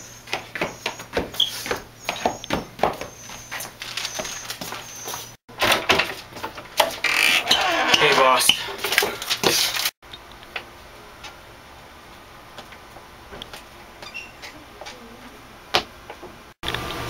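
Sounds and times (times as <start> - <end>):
people rushing through doorway: 5.6 - 9.9.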